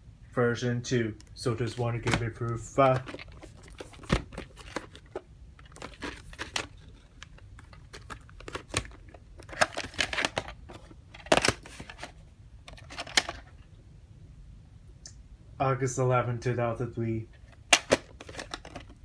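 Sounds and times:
plastic case clacking open: 1.9s - 13.6s, 17.4s - 19.0s.

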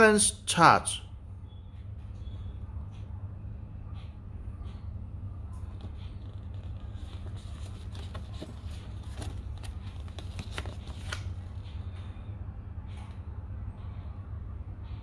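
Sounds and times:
steady low hum: 0.4s - 15.0s
paper pages rustling: 5.7s - 11.4s.

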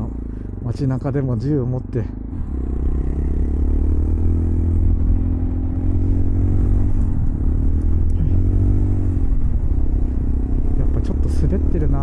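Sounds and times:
motorcycle engine running: 0.0s - 12.0s
person talking: 10.8s - 12.0s.

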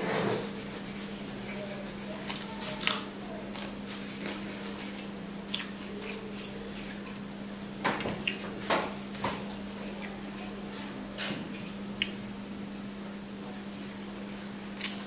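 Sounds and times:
steady low hum: 0.0s - 15.0s
wet chewing and mouth smacks: 4.9s - 6.2s, 12.0s - 12.2s.

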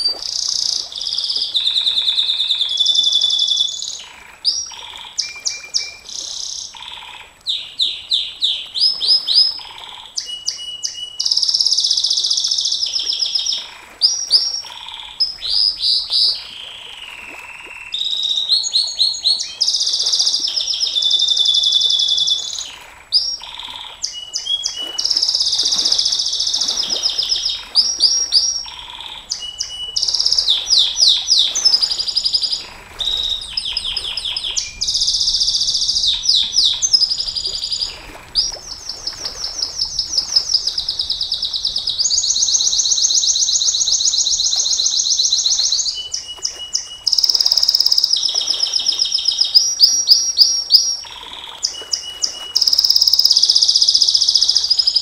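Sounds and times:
canary singing trills: 17.7s - 55.0s.

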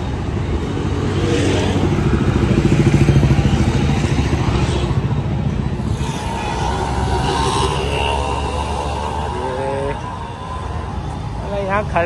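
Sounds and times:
small vehicle engine: 5.8s - 10.9s.

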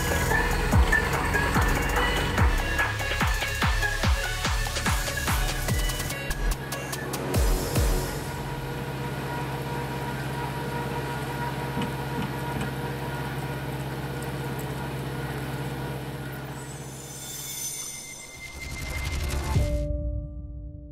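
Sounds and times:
diesel engine running steadily: 0.0s - 16.6s.

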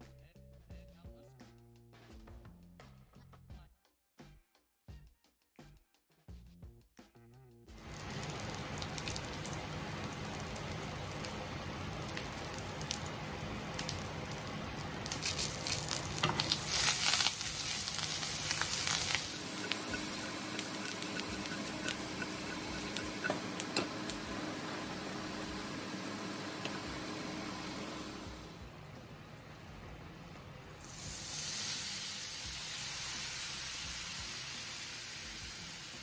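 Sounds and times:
potatoes sizzling in oil: 7.8s - 28.5s, 30.7s - 36.0s.

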